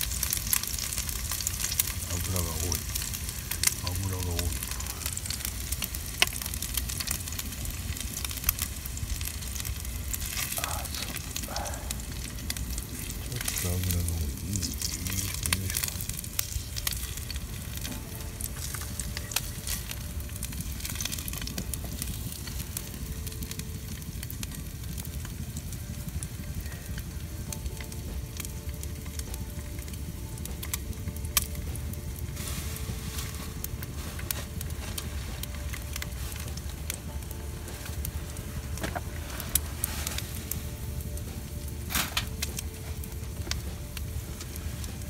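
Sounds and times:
meat sizzling in a frying pan: 0:00.0 - 0:45.0.

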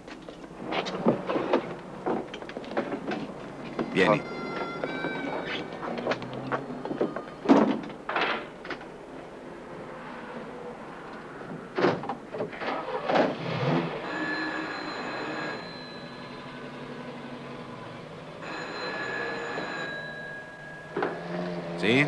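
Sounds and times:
telephone ringing: 0:03.7 - 0:05.9, 0:13.9 - 0:21.3.

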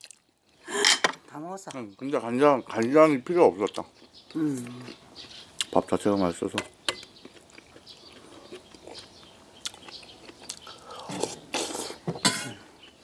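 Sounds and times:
mouths chewing: 0:02.8 - 0:12.1.

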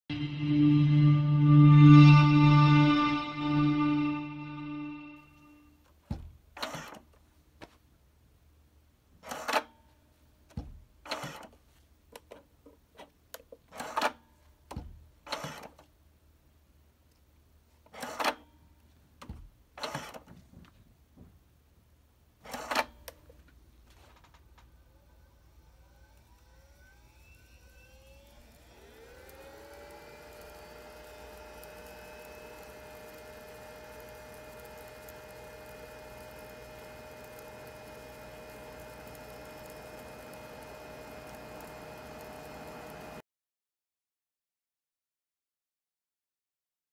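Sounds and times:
musical tone ringing: 0:00.1 - 0:05.6
centrifuge motor whine: 0:24.6 - 0:43.2.

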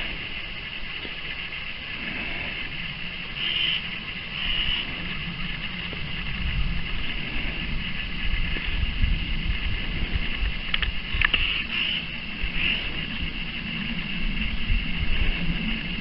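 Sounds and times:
wind buffeting microphone: 0:00.0 - 0:16.0
crow cawing: 0:03.4 - 0:05.0, 0:11.4 - 0:12.9.

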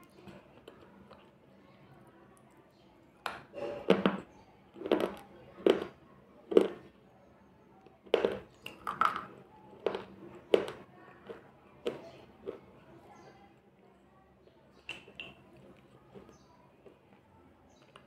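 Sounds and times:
crunching chewing: 0:03.4 - 0:06.9, 0:08.1 - 0:13.0, 0:14.9 - 0:18.0.

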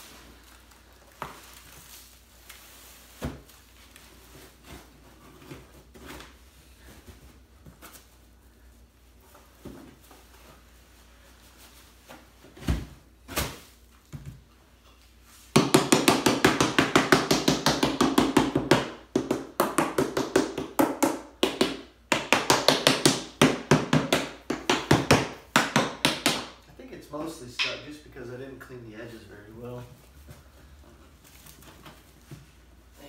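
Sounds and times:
rubber mallet striking plastic mold: 0:15.6 - 0:26.6.

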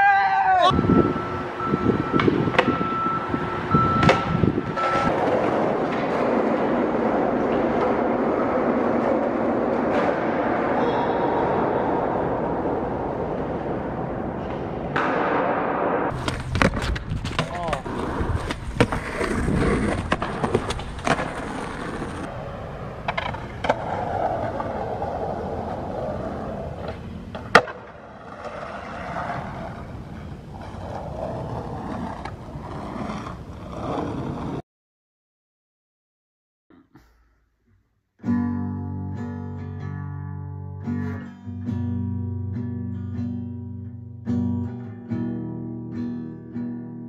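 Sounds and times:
skateboard wheels rolling on concrete: 0:00.0 - 0:34.6
skateboard clacks: 0:04.0 - 0:34.6.

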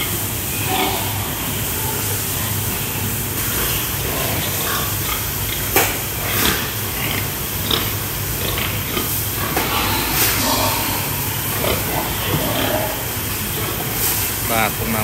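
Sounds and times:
background hiss and hum: 0:00.0 - 0:15.0
pigs grunting: 0:00.0 - 0:15.0.

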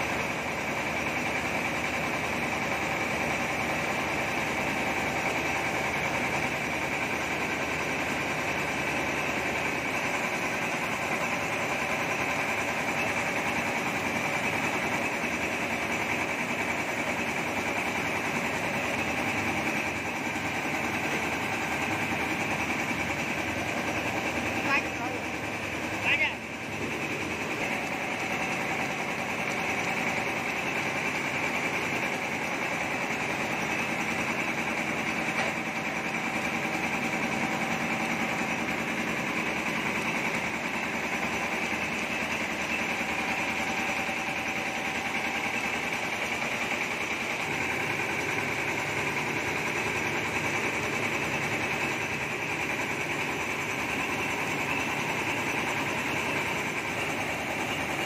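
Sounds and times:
rice mill machinery droning: 0:00.0 - 0:58.0
rice pouring through chutes: 0:27.3 - 0:58.0.

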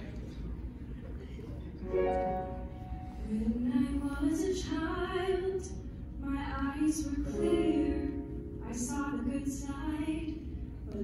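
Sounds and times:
woman singing a slow ballad: 0:03.1 - 0:11.0.

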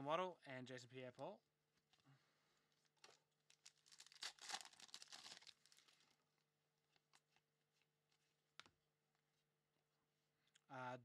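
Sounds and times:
foil pack tearing and crinkling: 0:03.6 - 0:06.0.

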